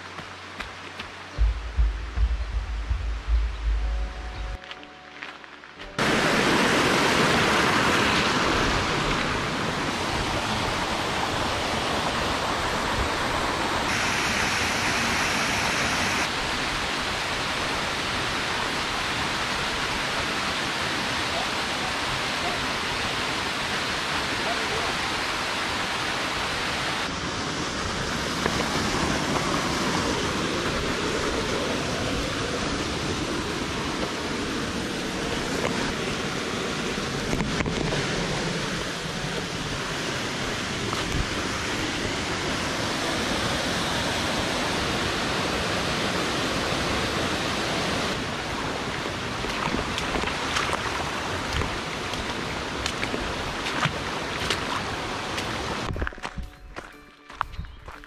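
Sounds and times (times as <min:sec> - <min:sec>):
rushing creek water: 0:00.0 - 0:56.1.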